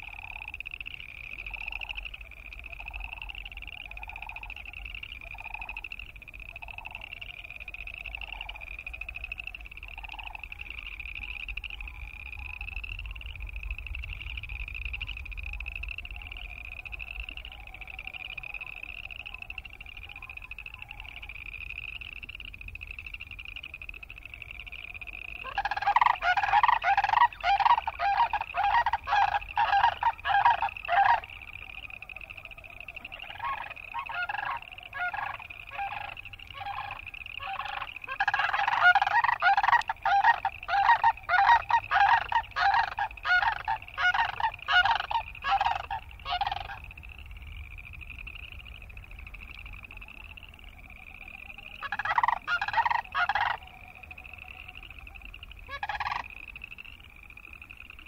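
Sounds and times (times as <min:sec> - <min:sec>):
frogs trilling: 0:00.0 - 0:58.0
cranes calling: 0:24.2 - 0:46.9, 0:51.6 - 0:56.3.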